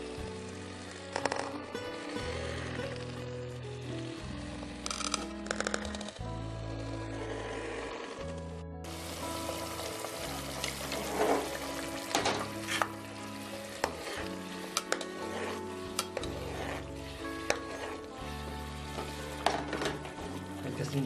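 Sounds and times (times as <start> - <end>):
gravy sizzling: 0.0 - 5.7, 8.8 - 21.0
background music: 0.0 - 21.0
spatula scraping metal pot: 10.5 - 20.6.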